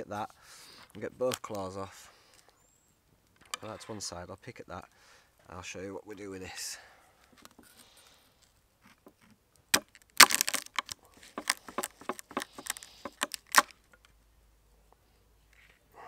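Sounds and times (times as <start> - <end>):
crab shell cracking under a knife: 9.7 - 13.8.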